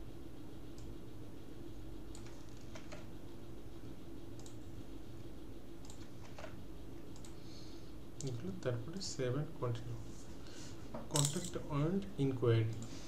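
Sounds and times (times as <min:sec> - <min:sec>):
low background hum: 0:00.0 - 0:13.0
keyboard and mouse clicks: 0:04.4 - 0:04.6, 0:05.8 - 0:07.4.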